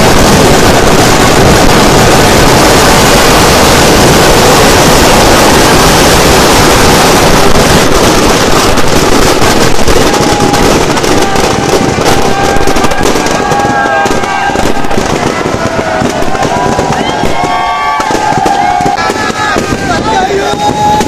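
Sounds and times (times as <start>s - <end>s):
firecrackers barrage: 0.0s - 21.0s
sharp firecracker cracks: 5.4s - 21.0s.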